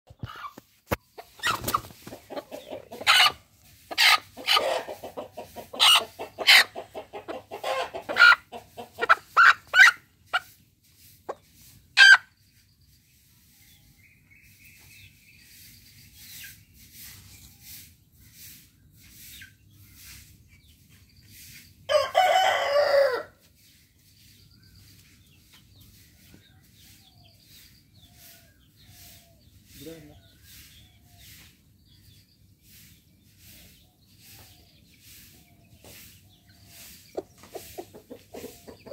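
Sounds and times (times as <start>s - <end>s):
drawn-out chicken call: 0.1s - 10.6s, 12.0s - 12.3s, 21.9s - 23.4s
hen squawking and clucking: 0.1s - 10.6s, 12.0s - 12.3s, 37.4s - 38.9s.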